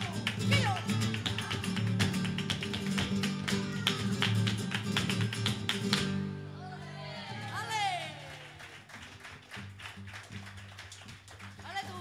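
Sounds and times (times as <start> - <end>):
flamenco guitar strumming: 0.0 - 8.4.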